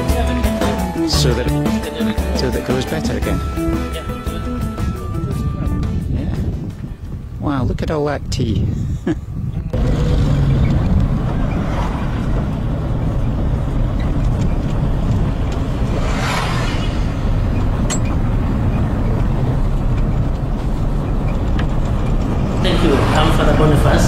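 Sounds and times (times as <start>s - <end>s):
vehicle engine and tyres rumbling: 0.0s - 24.0s
vehicle passing close by: 9.8s - 19.9s, 21.7s - 24.0s.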